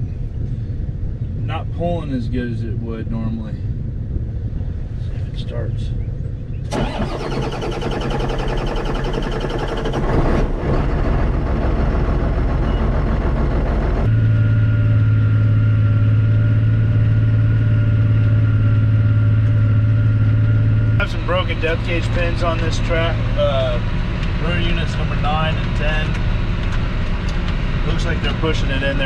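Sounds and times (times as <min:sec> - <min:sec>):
tractor engine running: 0:06.6 - 0:29.0
tractor engine cranking: 0:06.7 - 0:14.1.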